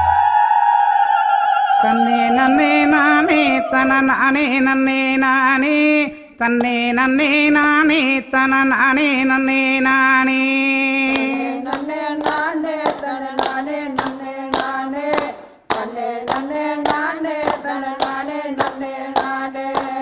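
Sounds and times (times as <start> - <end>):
people singing: 0.0 - 20.0
group hand-clapping: 6.5 - 6.9, 11.0 - 20.0.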